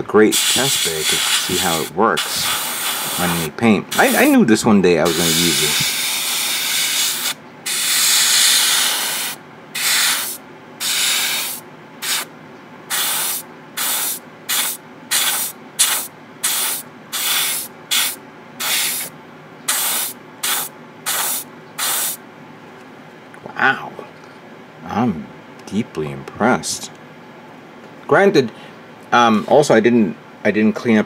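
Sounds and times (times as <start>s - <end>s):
airbrush spraying hiss: 0.3s - 4.4s, 5.1s - 12.3s, 12.9s - 19.1s, 19.7s - 22.2s.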